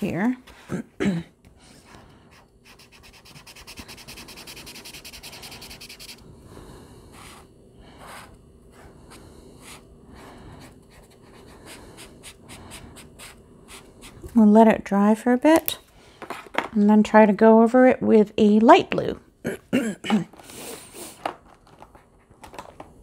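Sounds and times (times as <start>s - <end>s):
marker scribbling on paper: 2.3s - 6.2s.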